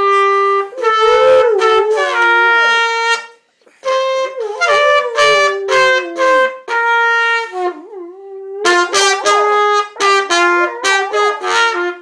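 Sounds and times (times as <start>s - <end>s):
trumpet playing: 0.0s - 12.0s
dog howling: 0.6s - 3.0s, 4.4s - 6.7s, 7.6s - 11.5s.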